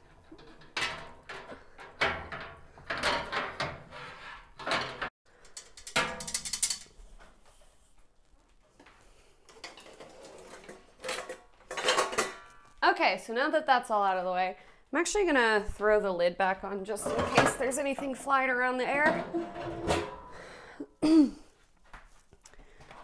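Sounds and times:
metal clanks and scrapes: 0.0s - 7.6s, 9.5s - 12.8s, 17.0s - 20.4s.

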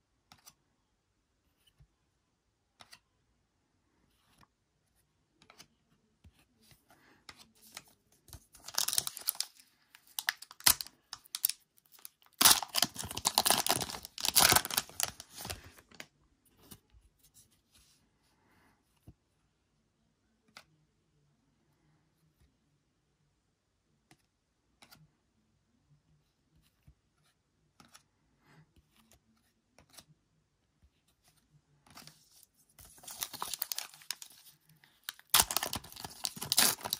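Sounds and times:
foil pack tearing and crinkling: 8.7s - 9.5s, 10.2s - 15.5s, 33.1s - 34.3s, 35.1s - 36.9s.

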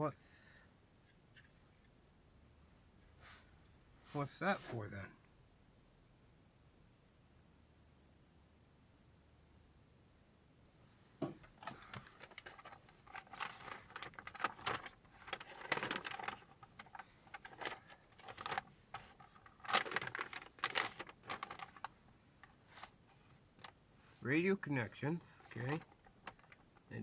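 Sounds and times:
packaging rustling: 11.4s - 23.0s, 25.2s - 26.9s
small parts clicking and tapping: 25.4s - 27.0s.

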